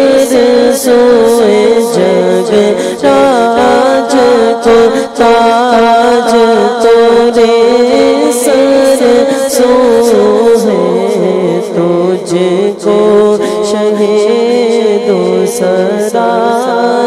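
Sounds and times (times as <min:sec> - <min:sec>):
man singing unaccompanied: 0:00.0 - 0:17.0.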